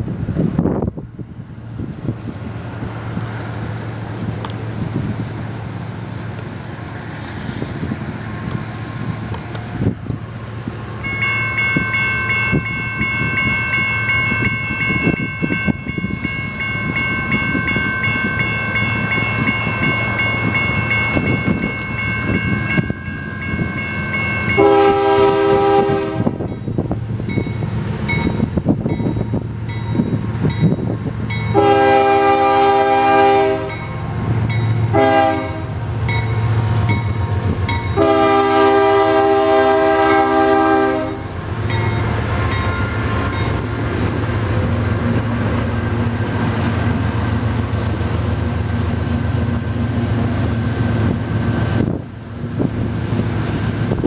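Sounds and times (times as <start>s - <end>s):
diesel locomotive engine rumble: 0.0s - 54.0s
steady high tone: 11.0s - 24.7s, 41.0s - 44.8s
locomotive air horn blasts: 24.5s - 26.5s, 31.5s - 33.8s, 34.9s - 35.8s, 38.0s - 41.3s.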